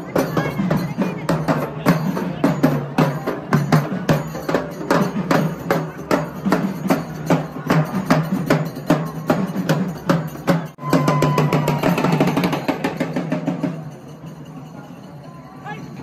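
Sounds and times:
steel drums beaten with sticks: 0.0 - 16.0.

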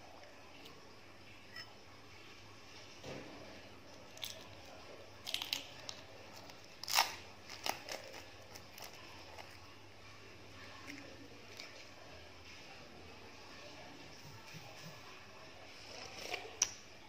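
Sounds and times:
eggshell cracking: 4.1 - 9.6.

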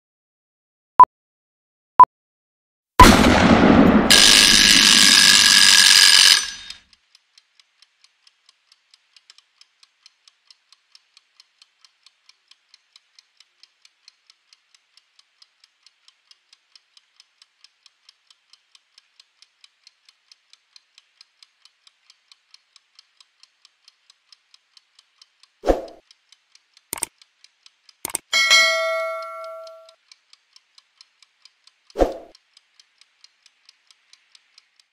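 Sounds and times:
clockwork ticking: 4.1 - 34.9
clicks: 28.0 - 30.0
kitchen timer bell ringing: 28.1 - 30.0
short chime: 28.4 - 29.9.

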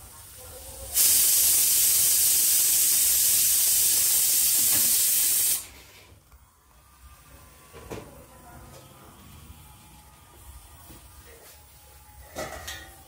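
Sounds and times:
loud steady hiss: 0.0 - 5.7.

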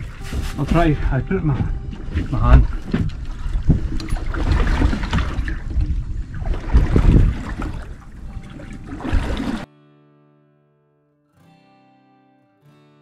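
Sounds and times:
wind buffeting microphone: 0.0 - 9.6
water sloshing and trickling: 0.0 - 9.7.

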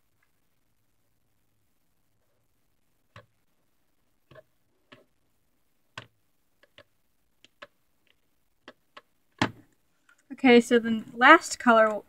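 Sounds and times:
plastic mould clicking: 5.9 - 9.8.

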